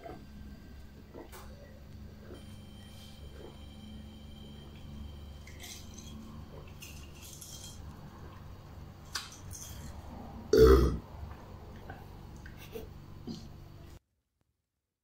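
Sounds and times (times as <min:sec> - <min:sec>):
man burping loudly: 0:10.5 - 0:11.0.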